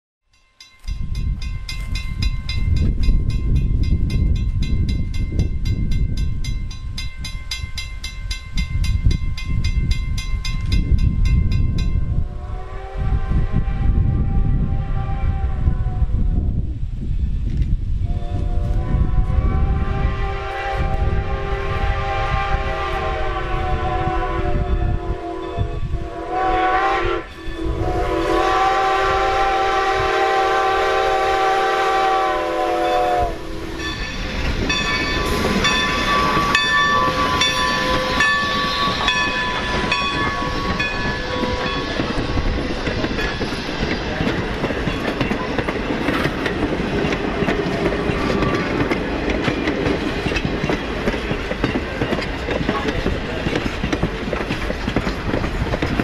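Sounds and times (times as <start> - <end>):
train wheels clickety-clack: 0.8 - 12.1, 33.8 - 56.0
steam whistle blasts: 12.2 - 16.2, 18.0 - 41.9.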